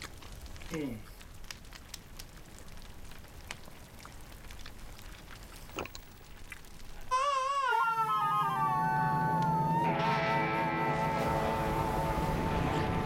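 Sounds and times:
loud guitar music: 0:08.6 - 0:13.0.

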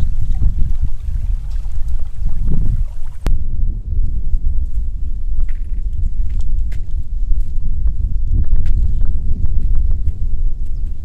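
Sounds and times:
wind buffeting microphone: 0:00.0 - 0:11.0
footsteps on gritty sand: 0:04.0 - 0:11.0.

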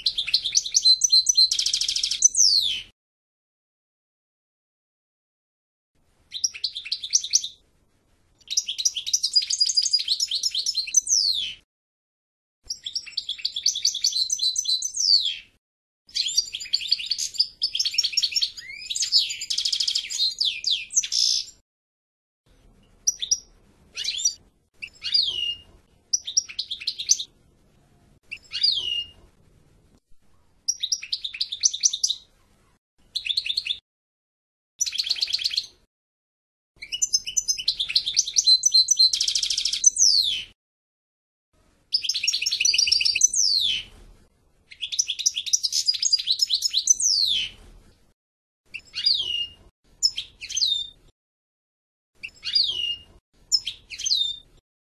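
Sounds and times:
goldfinch twittering song: 0:00.0 - 0:02.9, 0:06.3 - 0:07.6, 0:08.4 - 0:11.6, 0:12.7 - 0:15.5, 0:16.1 - 0:21.6, 0:23.0 - 0:27.3, 0:28.3 - 0:29.2, 0:30.7 - 0:32.3, 0:34.8 - 0:35.8, 0:36.8 - 0:40.6, 0:41.9 - 0:43.9, 0:44.7 - 0:47.6, 0:48.7 - 0:51.0, 0:52.2 - 0:54.4.

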